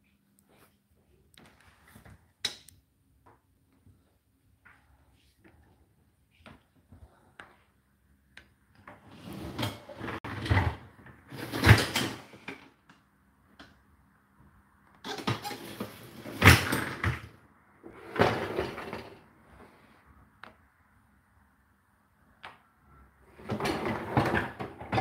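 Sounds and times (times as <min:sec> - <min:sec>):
dishwasher rack sliding: 0:09.1 - 0:12.5, 0:15.1 - 0:17.1, 0:17.9 - 0:19.2, 0:23.4 - 0:25.0.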